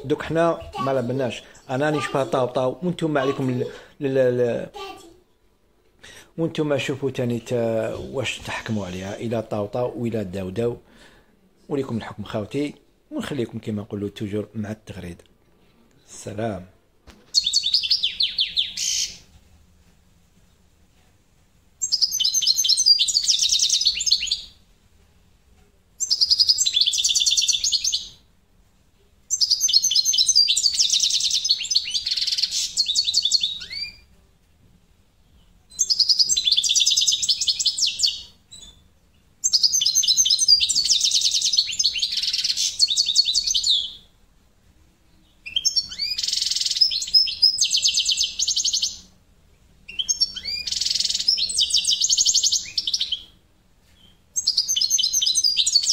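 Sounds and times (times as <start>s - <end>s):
goldfinch twittering song: 17.3s - 19.2s, 21.8s - 24.6s, 29.3s - 34.0s.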